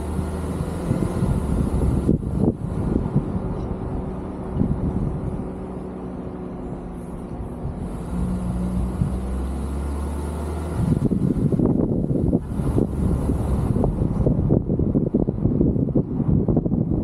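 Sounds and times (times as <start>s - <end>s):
wind buffeting microphone: 0.0s - 5.9s, 10.6s - 17.0s
car engine hum and road noise: 0.0s - 17.0s.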